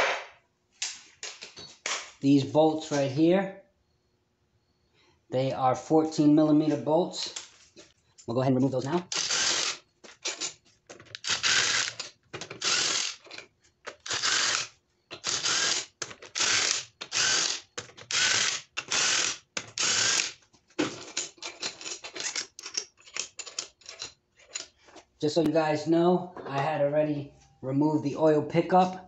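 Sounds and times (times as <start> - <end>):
ratchet wrench clicking: 11.2 - 13.2, 14.0 - 20.4.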